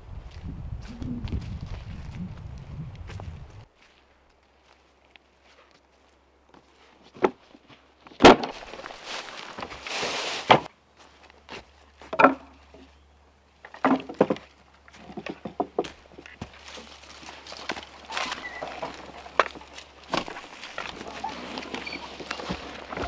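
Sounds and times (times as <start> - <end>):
scraping rustle: 8.5 - 10.7, 16.3 - 23.0
wooden knocks and thuds: 12.1 - 12.9, 13.6 - 16.6.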